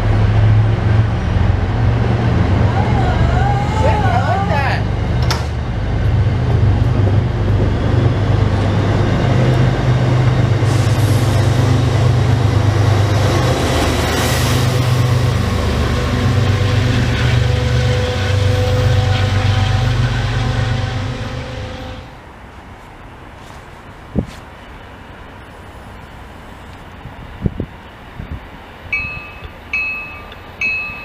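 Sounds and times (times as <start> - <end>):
train wheels rumbling on rail: 0.0 - 24.4.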